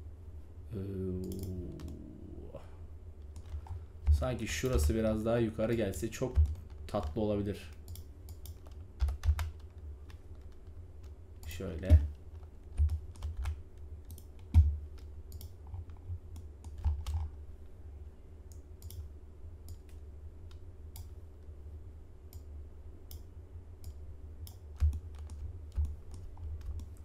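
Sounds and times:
steady low hum: 0.0s - 27.0s
mouse clicks: 18.5s - 19.1s, 23.1s - 27.0s.

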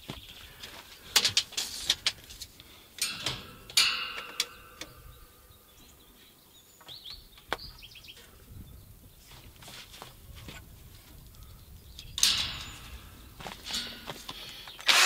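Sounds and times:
metallic clank: 3.0s - 5.2s, 12.2s - 14.2s
bird chirps: 4.2s - 9.4s.

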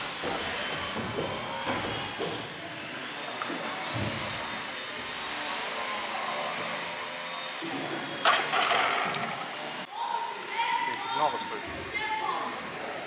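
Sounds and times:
loud clatter: 8.2s - 9.5s.

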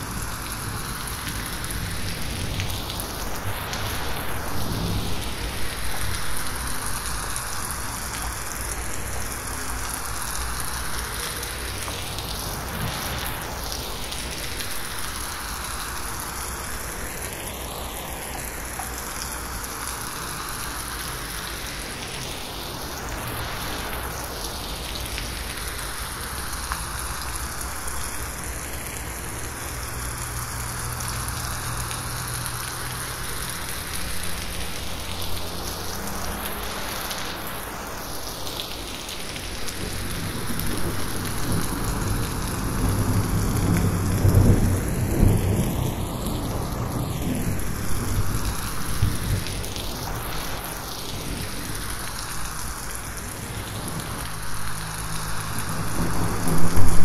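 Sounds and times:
rain falling on leaves: 0.0s - 57.0s.

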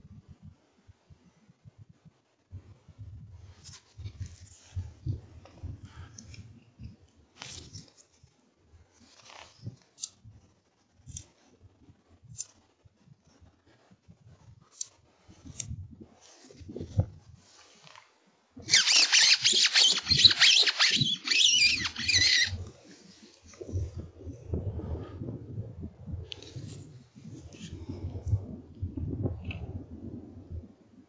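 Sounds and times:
faint clicks and handling noises: 3.6s - 8.4s
fox call squealing: 18.7s - 22.6s.

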